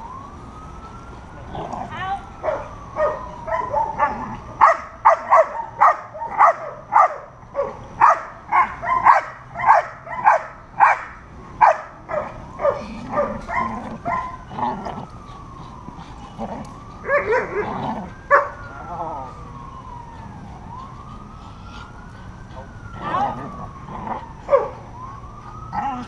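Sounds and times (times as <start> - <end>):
siren rising and falling: 0.0 - 26.0
dog barking: 2.5 - 14.3, 18.3 - 18.5.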